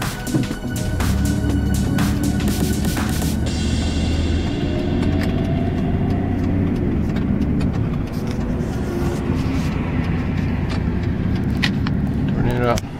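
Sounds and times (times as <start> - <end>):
car engine and road noise: 0.0 - 12.9.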